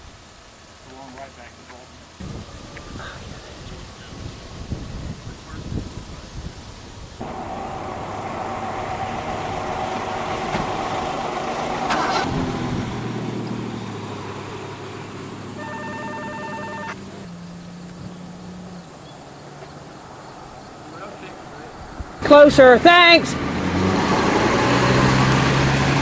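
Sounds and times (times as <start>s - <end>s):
truck driving past: 7.2s - 26.0s
short pulsing beep: 15.6s - 17.0s.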